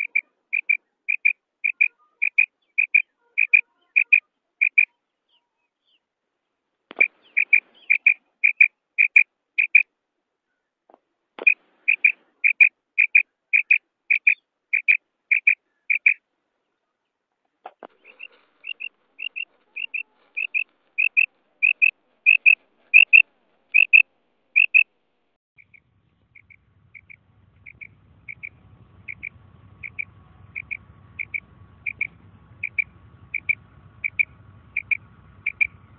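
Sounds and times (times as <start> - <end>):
quail calling: 0.0 - 5.5, 6.9 - 9.9, 11.4 - 16.2, 17.7 - 24.9, 25.6 - 35.9
faint low hum: 15.1 - 35.9.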